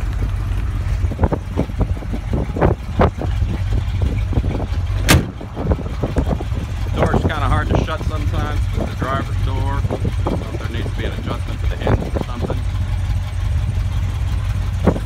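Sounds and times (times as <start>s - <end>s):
low rumble: 0.0s - 15.0s
sharp loud click: 5.0s - 5.4s.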